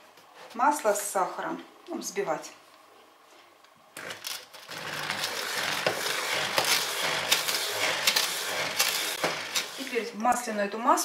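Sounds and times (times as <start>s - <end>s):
sugar churning: 4.6s - 10.1s
hand blender motor running: 4.7s - 10.0s.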